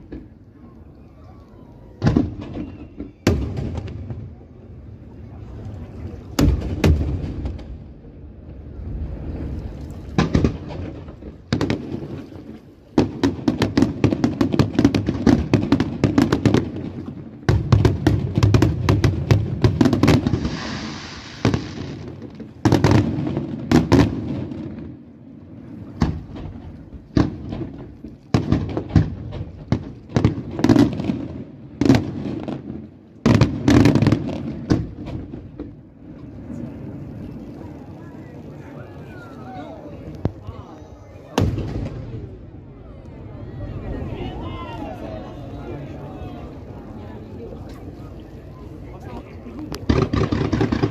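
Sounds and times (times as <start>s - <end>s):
firework booms: 2.0s - 4.8s, 6.3s - 9.4s, 10.1s - 36.9s, 41.3s - 42.7s, 49.8s - 50.9s
firework crackling: 2.0s - 42.8s, 43.6s - 50.9s
hissing rush: 20.2s - 22.2s.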